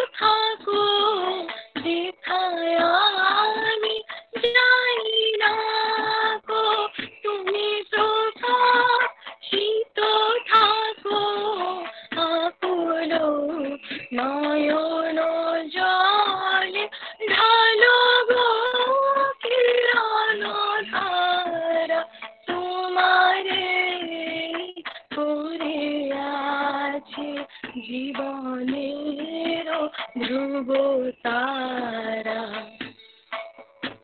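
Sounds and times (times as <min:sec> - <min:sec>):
woman singing: 0:00.0 - 0:32.9.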